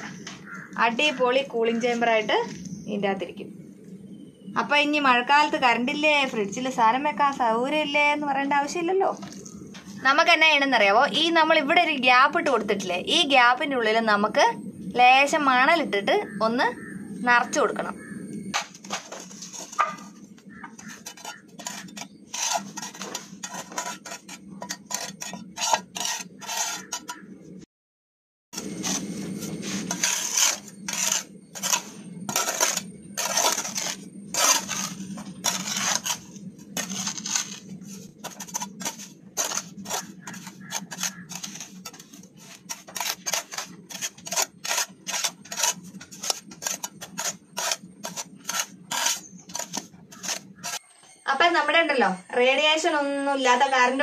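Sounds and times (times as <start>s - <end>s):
steady low hum: 0.0s - 27.7s, 28.6s - 54.0s
scoop scraping and pouring sand: 28.6s - 50.8s.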